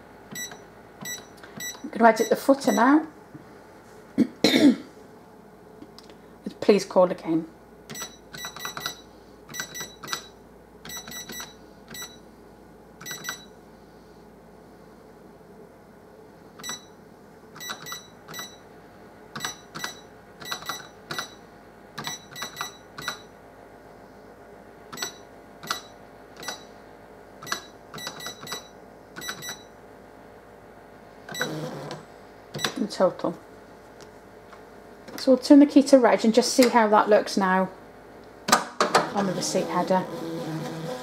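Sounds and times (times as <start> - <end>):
cash register keypad beeping: 0.3 - 2.9, 7.9 - 12.2, 13.0 - 13.5, 16.6 - 16.9, 17.6 - 18.6, 19.4 - 21.4, 22.0 - 23.3, 24.9 - 26.8, 27.4 - 29.7, 31.3 - 32.0, 32.6 - 32.8.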